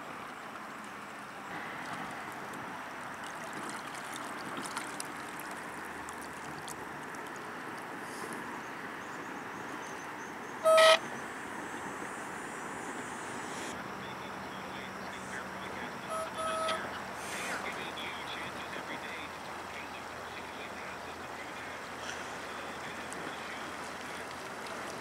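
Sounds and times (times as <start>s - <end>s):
steady background hiss: 0.0s - 25.0s
boat horn toot: 10.6s - 11.0s, 15.9s - 17.6s.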